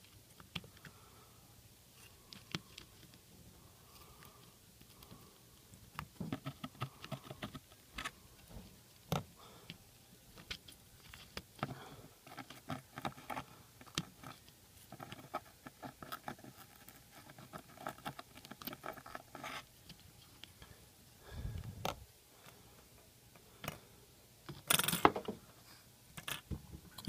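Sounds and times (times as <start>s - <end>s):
desoldering braid clicks and scratches: 10.3s - 20.6s.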